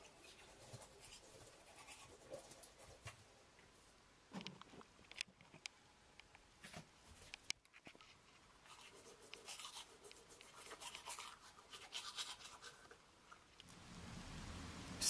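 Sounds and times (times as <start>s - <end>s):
toothbrush scrubbing teeth: 0.0s - 3.0s, 8.7s - 13.0s.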